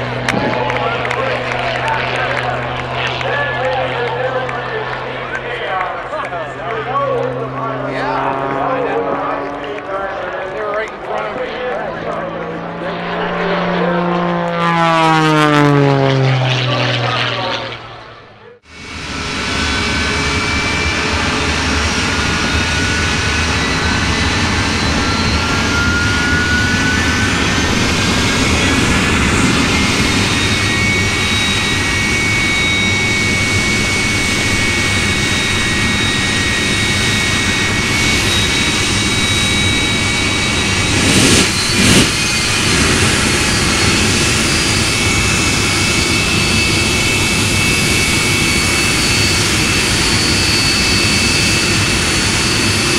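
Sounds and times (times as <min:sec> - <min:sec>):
jet engine rushing and whining: 0:00.0 - 0:52.9.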